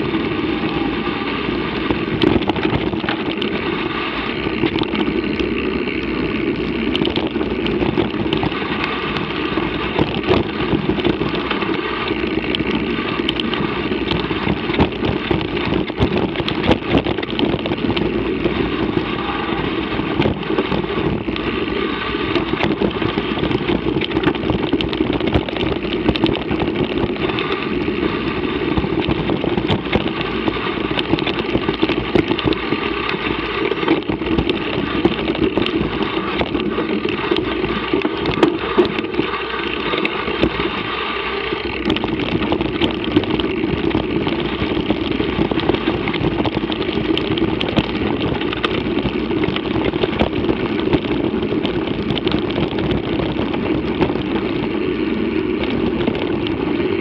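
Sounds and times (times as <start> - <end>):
bike clattering rattles: 0.0 - 57.0
bike tyre rumble on gravel: 0.0 - 57.0
wind rush: 0.0 - 57.0.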